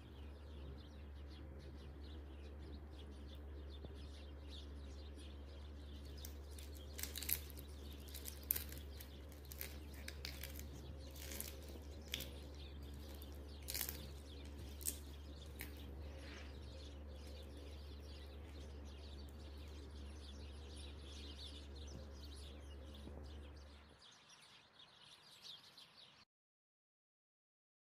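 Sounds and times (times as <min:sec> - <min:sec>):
low hum: 0:00.0 - 0:25.4
flaky pastry crackling: 0:05.7 - 0:23.6.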